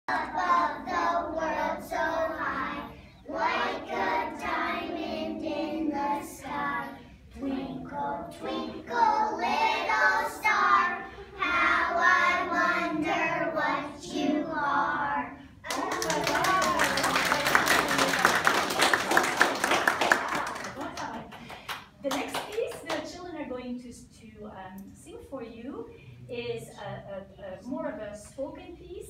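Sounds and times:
children singing in unison: 0:00.1 - 0:15.4.

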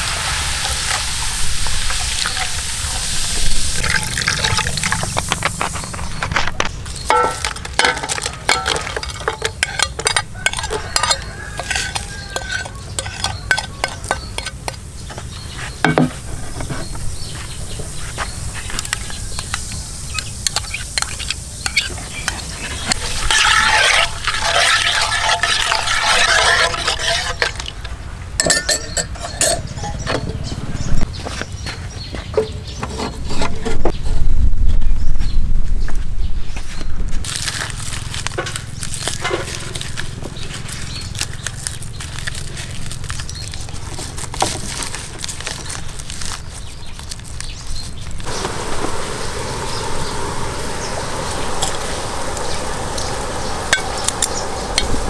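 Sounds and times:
dense crackling noise: 0:01.6 - 0:10.6, 0:37.2 - 0:55.0
utensils clinking against metal pot: 0:03.8 - 0:14.9, 0:20.1 - 0:30.5.

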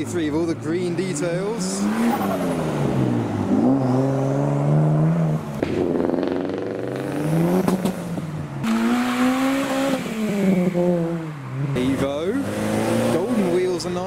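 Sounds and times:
car engines accelerating: 0:00.0 - 0:14.0
sharp exhaust crack: 0:05.5 - 0:09.3.

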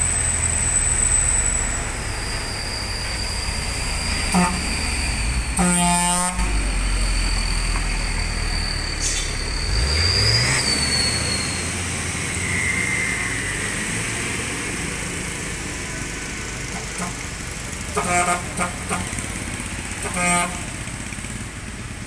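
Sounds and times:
truck diesel engine revving: 0:00.0 - 0:22.0
horn toot: 0:04.1 - 0:07.0, 0:17.9 - 0:19.2, 0:20.0 - 0:20.8.

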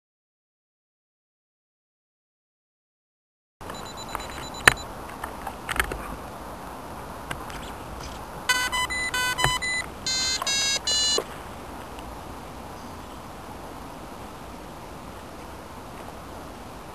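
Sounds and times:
electronic beeps: 0:03.6 - 0:04.9, 0:08.5 - 0:11.2.

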